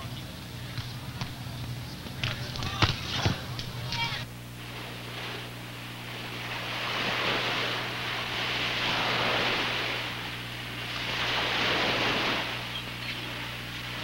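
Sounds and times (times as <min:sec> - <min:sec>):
steady low hum: 0:00.0 - 0:14.0
ocean surf washing in: 0:04.3 - 0:14.0.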